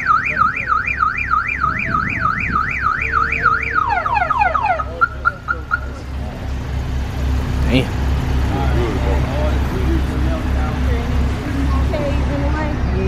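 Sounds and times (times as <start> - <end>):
car alarm siren: 0.0 - 6.1.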